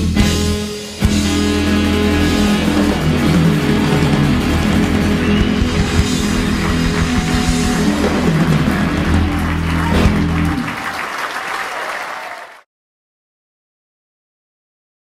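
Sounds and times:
rock band holding final chord: 0.1s - 11.0s
audience applause: 2.3s - 12.7s
drum hit: 3.0s - 9.2s.

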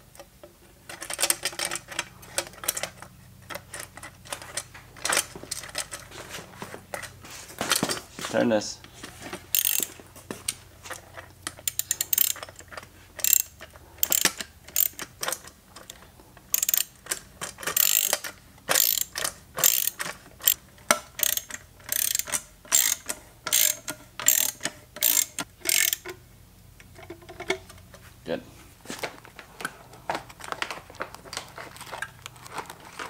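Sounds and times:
ratchet wrench clicking: 9.5s - 9.9s, 11.5s - 26.2s.

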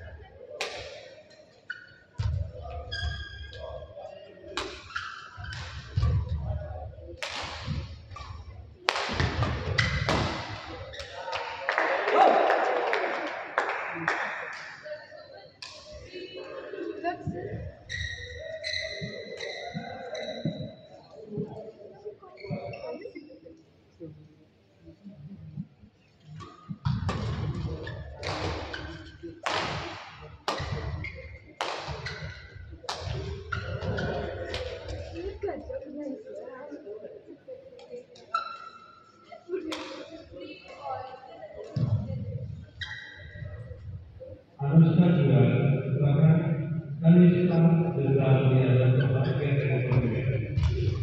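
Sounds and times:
people's voices in hall: 0.0s - 51.0s
shoe squeaks on court: 2.8s - 3.8s, 4.6s - 6.0s, 17.9s - 20.9s, 33.5s - 34.5s, 38.3s - 39.2s, 42.8s - 43.6s
racket hitting shuttlecock: 7.2s - 8.3s, 28.2s - 31.0s.

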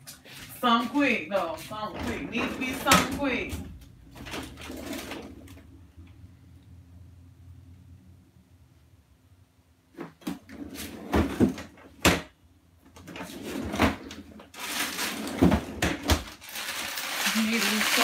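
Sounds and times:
packages rustling and sliding: 13.0s - 18.0s.

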